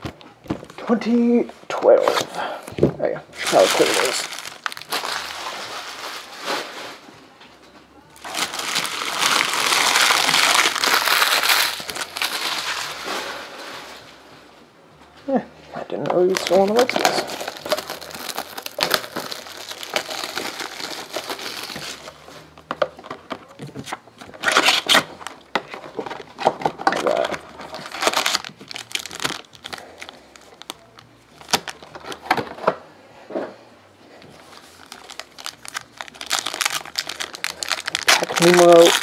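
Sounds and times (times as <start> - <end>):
foil packs crinkling: 3.4 - 7.0, 8.2 - 13.4, 16.3 - 22.6, 24.4 - 32.5, 34.4 - 39.0.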